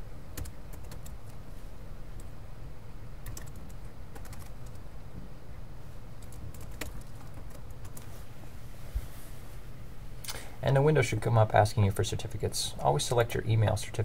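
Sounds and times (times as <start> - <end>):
steady low hum: 0.0 - 14.0
keyboard typing: 0.4 - 1.4, 3.2 - 4.8, 6.2 - 8.1.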